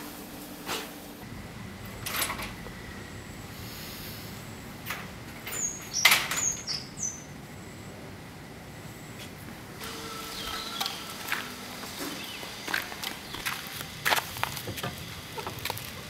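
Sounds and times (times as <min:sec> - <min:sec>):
bird chirps: 0:05.6 - 0:07.3, 0:10.3 - 0:11.1.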